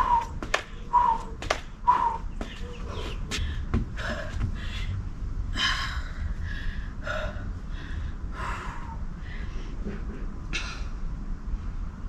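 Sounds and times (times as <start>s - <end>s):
woman breathing hard: 3.3s - 9.8s.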